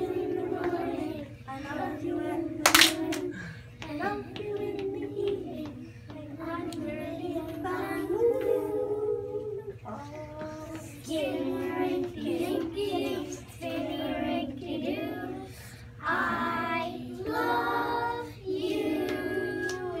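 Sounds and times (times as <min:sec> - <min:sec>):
children singing in unison: 0:00.0 - 0:03.4, 0:10.8 - 0:20.0.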